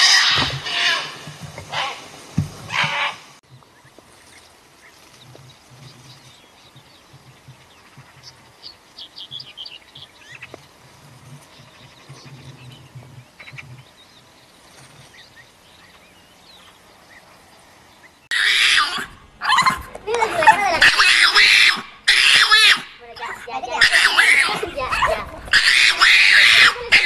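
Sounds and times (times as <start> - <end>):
bird chirps and twitters: 3.6 - 17.3.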